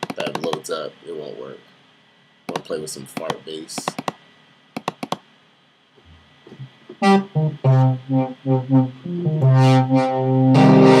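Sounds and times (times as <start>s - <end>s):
synthesizer bass notes: 6.6s - 11.0s.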